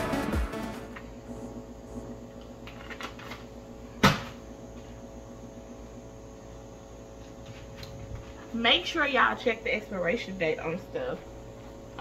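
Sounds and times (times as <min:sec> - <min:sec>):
low background hum: 0:00.4 - 0:12.0
item set down on shelf knock: 0:04.0 - 0:04.4.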